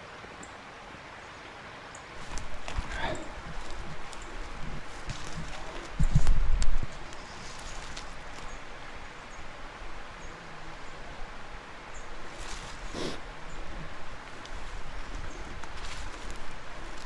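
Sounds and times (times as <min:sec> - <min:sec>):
footsteps through dry leaves: 0:02.2 - 0:08.6, 0:12.2 - 0:13.2, 0:14.0 - 0:17.0.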